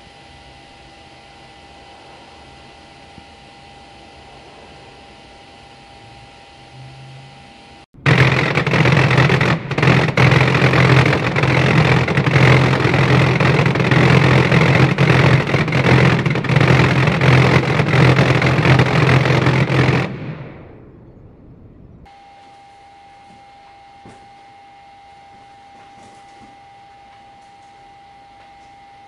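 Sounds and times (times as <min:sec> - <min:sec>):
fireworks barrage: 0:00.1 - 0:06.8, 0:07.9 - 0:22.1.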